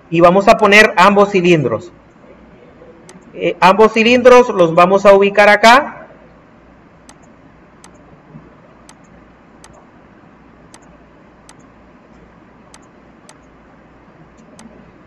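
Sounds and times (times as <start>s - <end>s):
low steady hum and hiss: 0.0s - 15.0s
computer mouse clicks: 3.1s - 3.3s, 7.0s - 8.1s, 8.8s - 9.9s, 10.7s - 13.6s, 14.3s - 14.8s.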